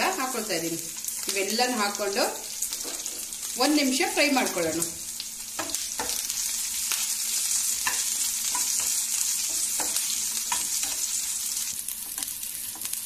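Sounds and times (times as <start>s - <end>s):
spices sizzling in hot oil: 0.0s - 13.0s
steel spatula scraping and tapping: 5.6s - 6.2s, 7.8s - 11.1s.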